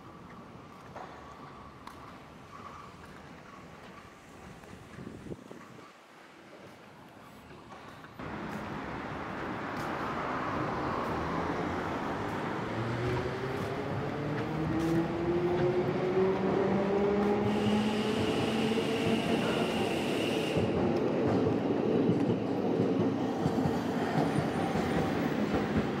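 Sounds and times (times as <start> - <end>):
tram running rumble: 7.6 - 26.0.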